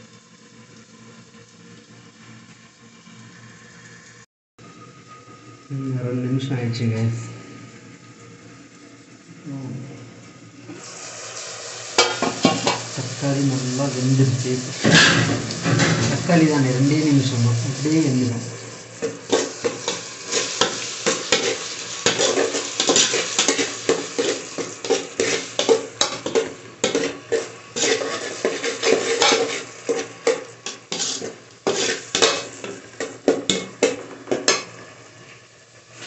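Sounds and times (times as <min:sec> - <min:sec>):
ladle scraping a metal pot: 0:19.0 - 0:34.6.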